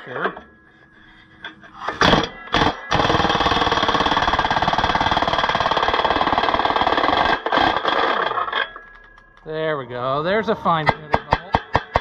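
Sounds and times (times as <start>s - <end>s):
air impact wrench hammering: 2.0s - 8.5s, 10.8s - 12.0s.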